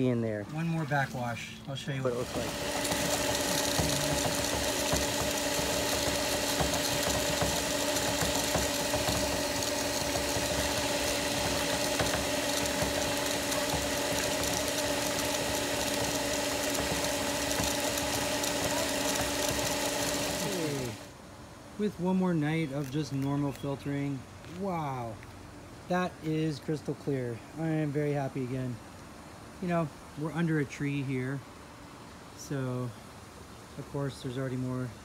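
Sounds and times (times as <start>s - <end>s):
pool pump motor humming: 0.0s - 25.1s
water rushing through filter valve: 2.0s - 21.1s.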